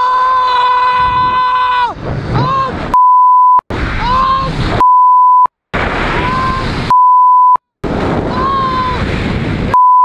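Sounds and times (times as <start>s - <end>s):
man yelling: 0.0s - 2.8s, 4.0s - 4.6s, 8.3s - 9.1s
wind rushing on microphone: 0.7s - 3.0s, 3.7s - 4.9s, 5.8s - 6.9s, 7.8s - 9.8s
censor bleep: 3.0s - 3.6s, 4.8s - 5.5s, 6.9s - 7.6s, 9.7s - 10.0s.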